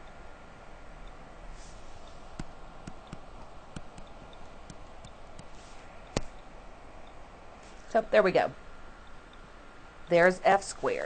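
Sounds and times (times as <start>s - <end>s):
steady background hiss: 0.0s - 11.0s
stylus tapping on tablet screen: 2.1s - 6.5s.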